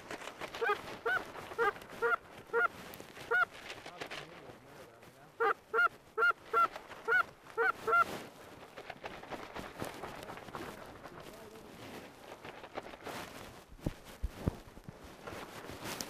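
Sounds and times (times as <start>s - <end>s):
goose honking: 0.6s - 2.7s, 5.4s - 8.0s.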